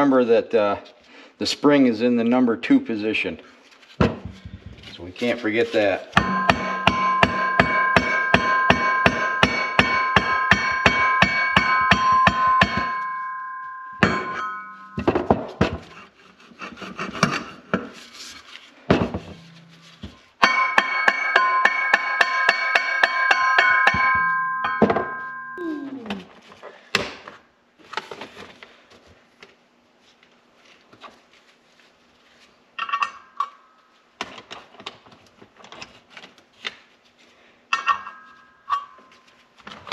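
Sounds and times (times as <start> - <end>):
tools clattering: 14.0 - 16.0, 19.0 - 25.2.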